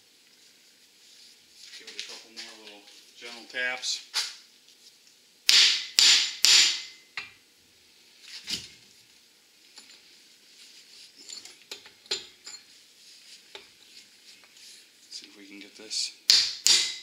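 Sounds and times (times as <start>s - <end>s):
hammer striking metal: 5.5s - 7.1s, 16.3s - 17.0s
metal parts clinking: 11.2s - 12.7s.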